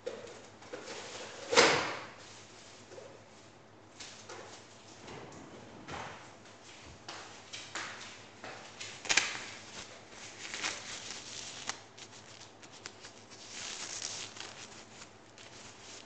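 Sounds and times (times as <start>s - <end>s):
rustling: 9.0s - 16.0s.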